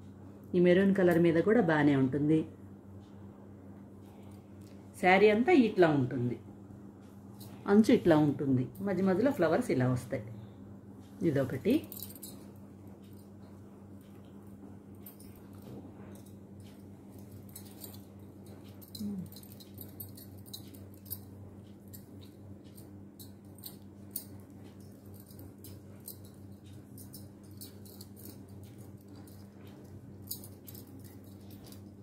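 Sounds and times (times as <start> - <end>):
steady low hum: 0.0 - 32.0
glass bangles clinking: 11.8 - 13.3, 15.0 - 32.0.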